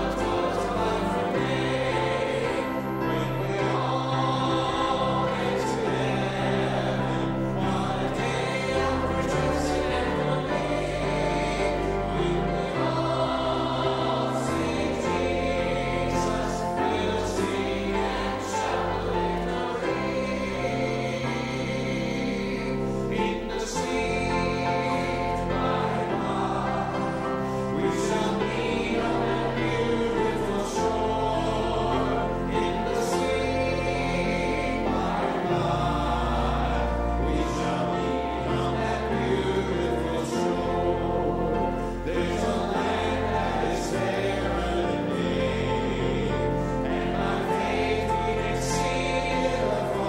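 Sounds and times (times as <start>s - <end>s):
congregation singing a hymn: 0.0s - 50.0s.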